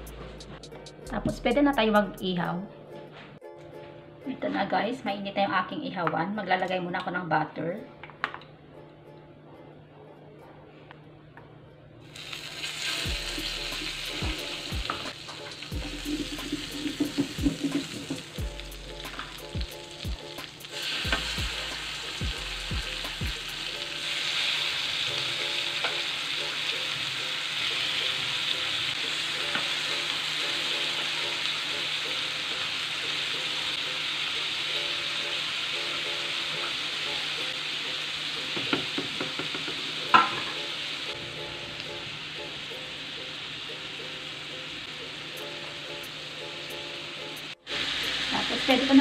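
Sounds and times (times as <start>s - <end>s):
fish sizzling on grill plate: 12.1s - 49.0s.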